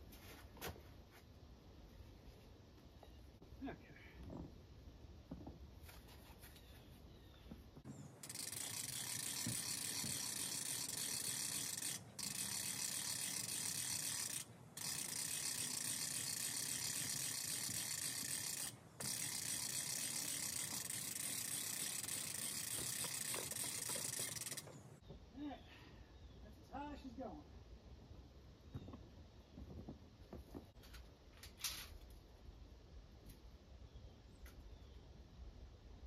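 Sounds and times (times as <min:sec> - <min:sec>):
winch ratchet clicking: 0:08.2 - 0:24.9.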